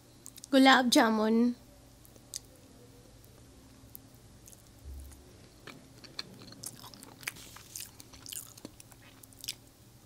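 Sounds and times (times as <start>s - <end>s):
chewing and biting: 4.4s - 9.7s.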